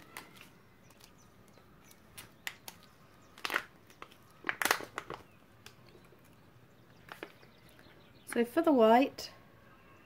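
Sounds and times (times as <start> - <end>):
plastic sachet crinkling: 0.0 - 7.8.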